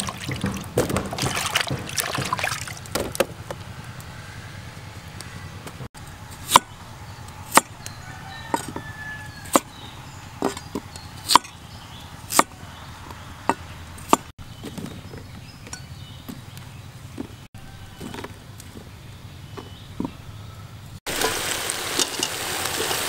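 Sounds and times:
cleaver chopping on wooden board: 0:00.0 - 0:03.4, 0:06.4 - 0:06.7, 0:07.5 - 0:07.8, 0:08.5 - 0:08.8, 0:09.5 - 0:09.8, 0:10.4 - 0:11.6, 0:12.3 - 0:12.6, 0:13.5 - 0:14.3.

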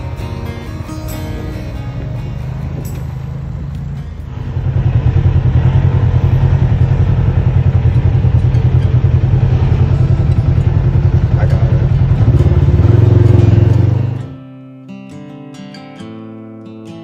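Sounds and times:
vehicle engine idling: 0:00.0 - 0:14.4.

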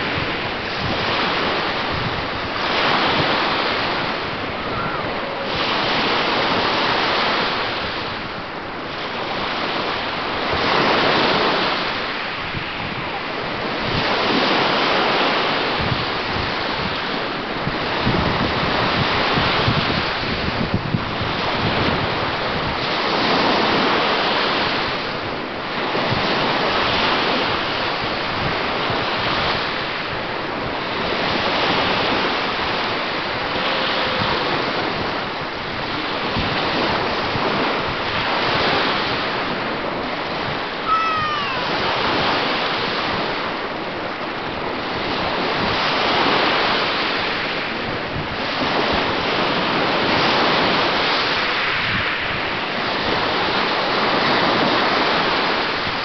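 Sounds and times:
small waves breaking on sand: 0:00.0 - 0:56.0
wind on microphone: 0:00.0 - 0:56.0
high falling squeak: 0:40.8 - 0:41.7.

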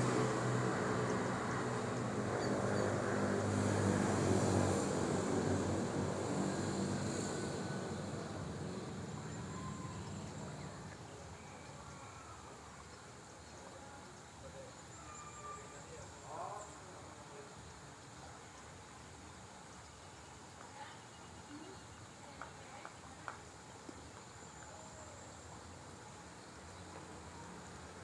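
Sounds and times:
faint high chirps: 0:14.4 - 0:16.5.

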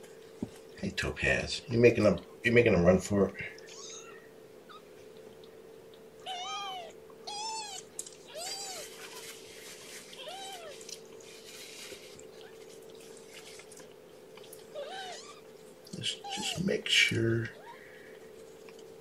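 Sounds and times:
faint steady hum: 0:00.0 - 0:19.0
kitten mewing: 0:03.7 - 0:04.8, 0:06.2 - 0:08.9, 0:10.2 - 0:10.8, 0:14.7 - 0:15.4.

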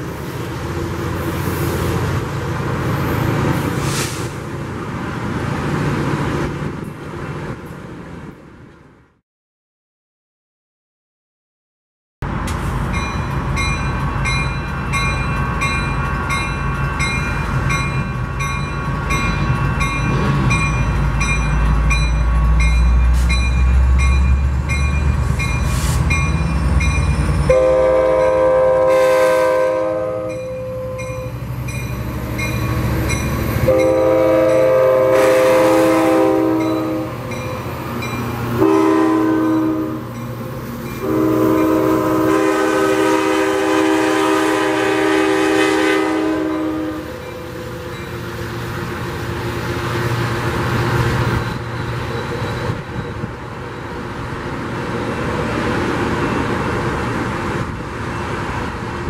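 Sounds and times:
crossing warning bell ringing: 0:12.8 - 0:44.2, 0:45.3 - 0:54.6
train horn blasts: 0:27.5 - 0:31.3, 0:33.6 - 0:37.4, 0:38.6 - 0:40.1, 0:41.0 - 0:47.8.

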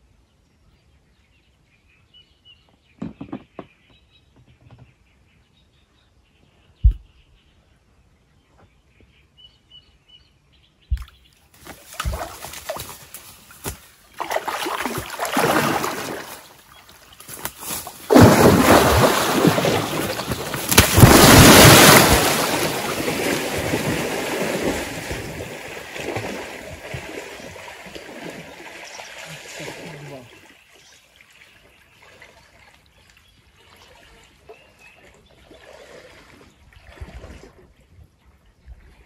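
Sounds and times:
water splashing: 0:11.0 - 0:32.9, 0:33.6 - 0:37.8
water sloshing: 0:11.0 - 0:38.0.

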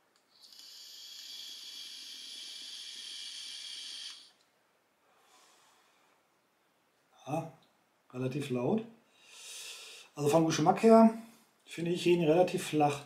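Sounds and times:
air hissing through e-cigarette: 0:00.3 - 0:04.4.

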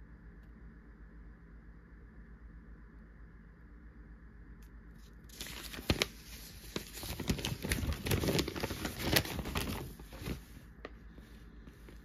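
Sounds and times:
newspaper rustling and crinkling: 0:05.2 - 0:12.0.

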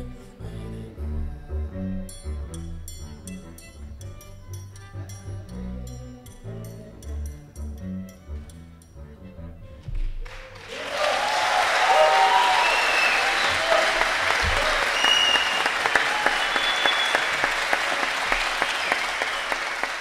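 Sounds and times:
audience applauding: 0:10.2 - 0:20.0
shouts and whistles: 0:10.7 - 0:20.0.

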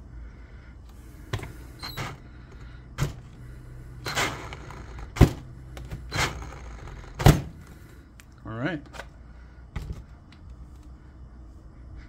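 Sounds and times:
low steady hum: 0:00.0 - 0:12.0
handling knocks and clunks: 0:01.2 - 0:03.4, 0:04.0 - 0:07.7.

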